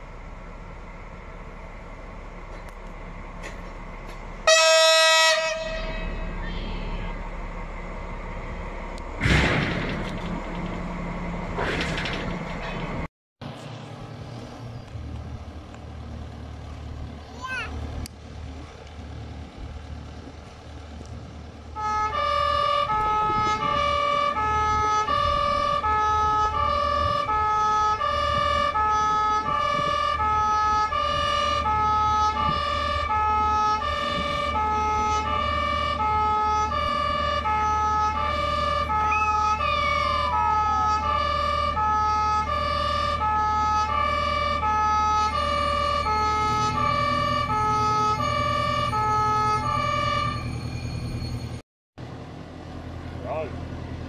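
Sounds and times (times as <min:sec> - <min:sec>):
truck engine humming: 0:00.0 - 0:54.0
two-tone fire engine siren: 0:04.4 - 0:07.3, 0:21.7 - 0:51.6.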